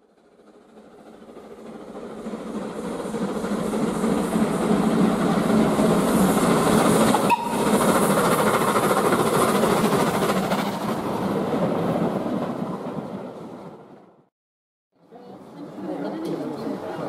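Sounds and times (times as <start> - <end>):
steam train passing: 0.0 - 14.2.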